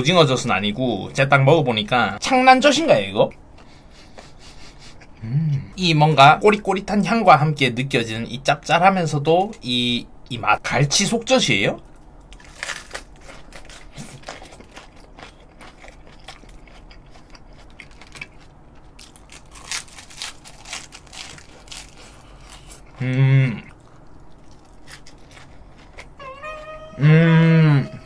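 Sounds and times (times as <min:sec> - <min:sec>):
person humming mm: 0:05.2 - 0:05.7, 0:23.0 - 0:23.7, 0:26.2 - 0:28.0
crisp chewing crunches: 0:12.3 - 0:26.2.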